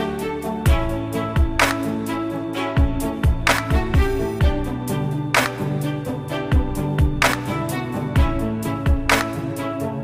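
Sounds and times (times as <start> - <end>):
snare hit: 1.6 - 1.9, 5.4 - 5.7, 7.2 - 7.6, 9.1 - 9.5.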